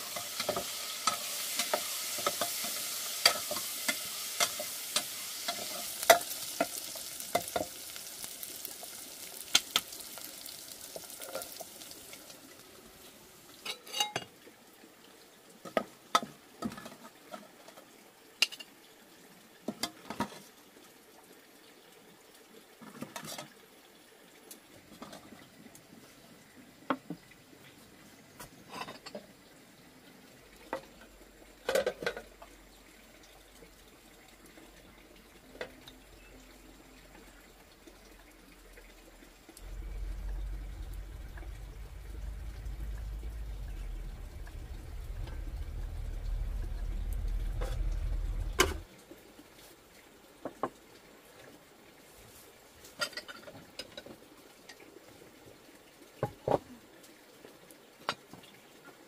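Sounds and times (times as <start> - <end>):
dishes and utensils clinking: 13.7 - 14.3
low steady rumble: 39.6 - 48.9.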